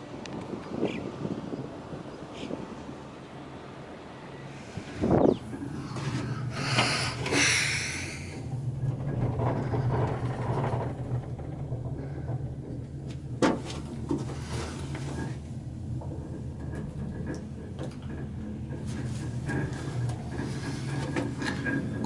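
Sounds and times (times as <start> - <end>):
gondola cabin low hum: 0.0 - 22.0
hiss: 6.6 - 8.3.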